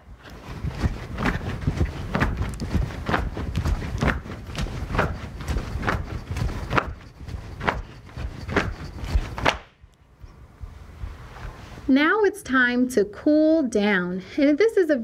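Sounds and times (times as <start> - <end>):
low rumble of movement: 0.0 - 11.9
feet thudding on floor: 0.3 - 9.7.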